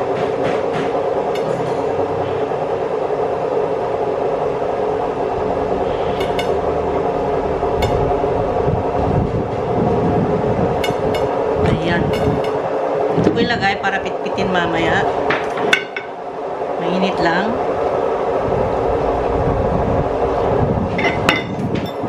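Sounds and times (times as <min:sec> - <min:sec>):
washing machine drone: 0:00.0 - 0:22.0.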